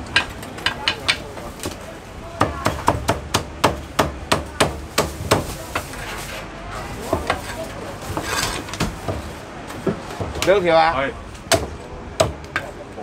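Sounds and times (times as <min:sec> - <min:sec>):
cleaver chopping on wooden block: 0:11.5 - 0:12.7.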